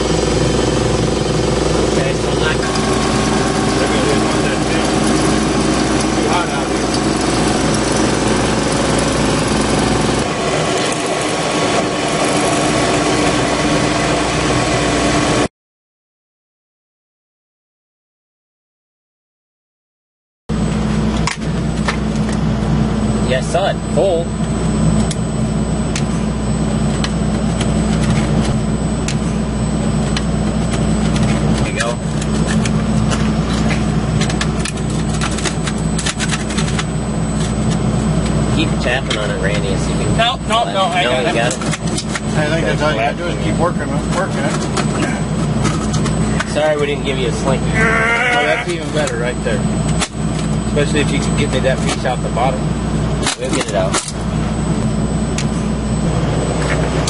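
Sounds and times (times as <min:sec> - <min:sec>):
milling machine grinding: 0:00.0 - 0:15.4
low machine drone: 0:00.0 - 0:15.5, 0:20.5 - 0:57.0.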